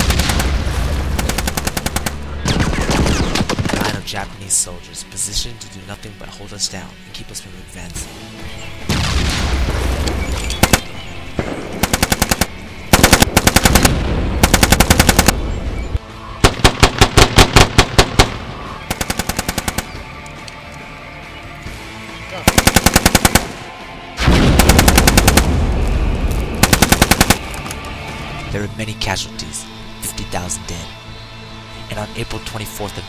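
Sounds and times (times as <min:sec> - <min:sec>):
automatic gunfire bursts: 0:01.2 - 0:02.2, 0:10.6 - 0:10.9, 0:11.8 - 0:15.4, 0:18.9 - 0:20.0, 0:22.4 - 0:23.6, 0:24.6 - 0:25.5, 0:26.6 - 0:27.5.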